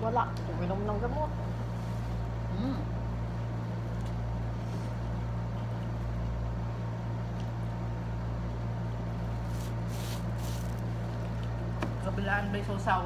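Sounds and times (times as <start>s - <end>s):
air conditioner humming: 0.0s - 13.0s.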